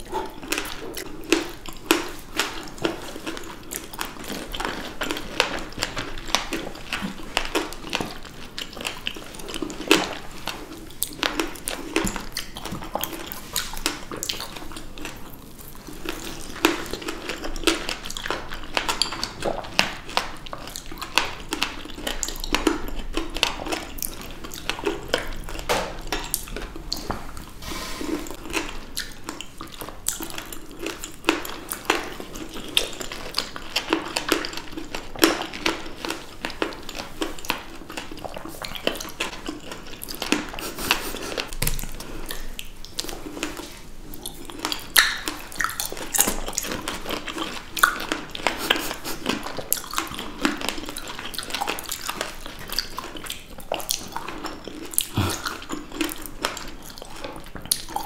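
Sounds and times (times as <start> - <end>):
wet chewing of berries: 0.0 - 58.0
lip smacks: 37.4 - 58.0.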